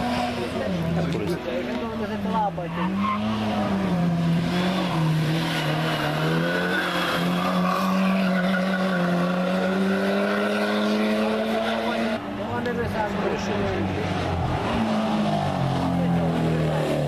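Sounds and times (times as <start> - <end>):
tyre squeal: 5.6 - 9.4.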